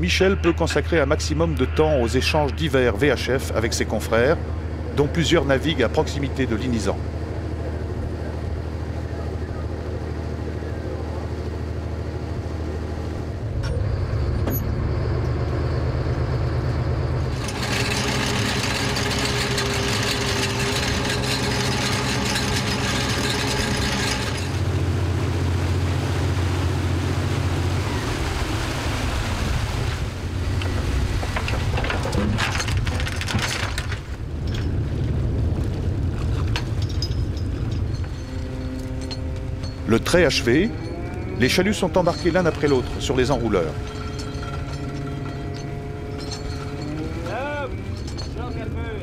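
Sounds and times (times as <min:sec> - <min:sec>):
boat engine and winch running: 0:00.0 - 0:49.0
metal clanks: 0:17.3 - 0:24.7, 0:31.2 - 0:34.8, 0:36.2 - 0:49.0.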